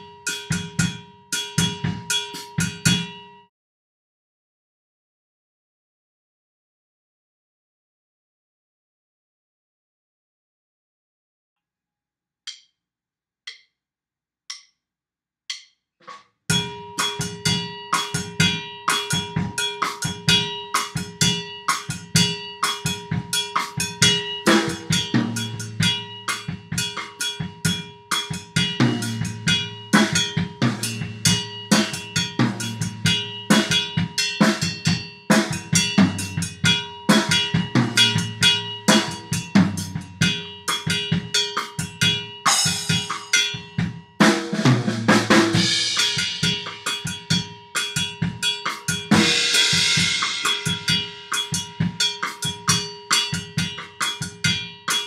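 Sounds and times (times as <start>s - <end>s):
samba drum kit groove: 0.0s - 3.2s, 16.5s - 55.0s
cowbell strokes: 0.0s - 3.3s, 16.5s - 44.4s, 45.2s - 55.0s
cymbal wash: 49.2s - 53.4s.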